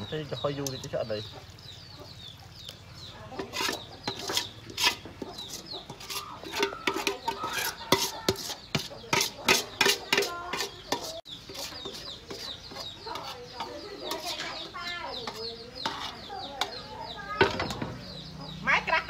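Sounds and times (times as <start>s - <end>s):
chickens clucking: 0.0s - 19.0s
steel bowl being scraped: 3.3s - 16.3s
sharp clicks and scrapes: 3.4s - 14.6s.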